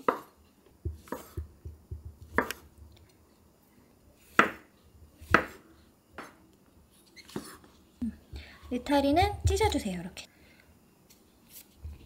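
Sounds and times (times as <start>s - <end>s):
knife knocking on wooden board: 0.8s - 2.6s
knife slicing mushrooms: 0.9s - 2.7s, 4.2s - 5.6s.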